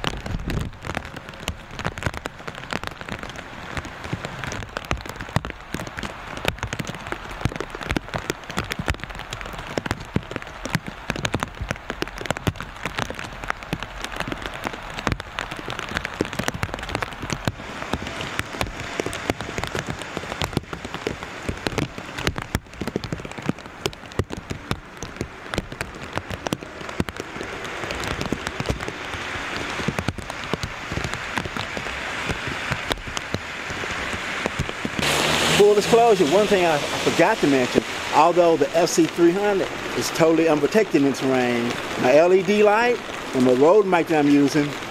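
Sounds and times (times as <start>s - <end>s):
raindrops pattering on plastic bag: 0.0s - 44.9s
steady rain falling: 0.0s - 44.9s.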